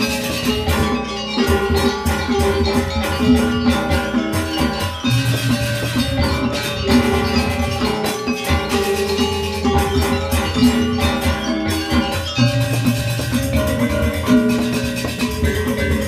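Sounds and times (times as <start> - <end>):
hand drums: 0.0 - 16.0
metallophones struck with mallets: 0.0 - 16.0.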